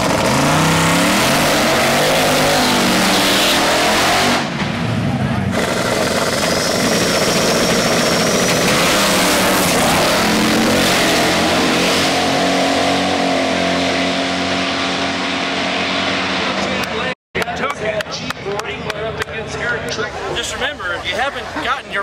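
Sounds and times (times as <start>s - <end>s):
car engine revving and accelerating: 0.0s - 4.6s, 5.5s - 16.9s
second car engine: 0.0s - 17.2s.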